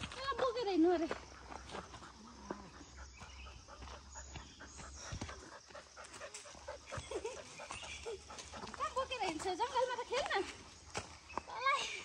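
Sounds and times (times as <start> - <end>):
dog panting faintly: 0.8 - 10.2.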